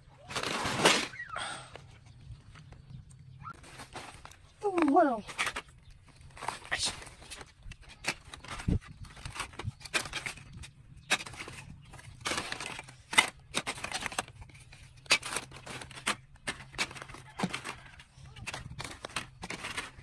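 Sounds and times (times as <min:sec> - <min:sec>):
plastic phone parts clacking: 0:07.2 - 0:20.0.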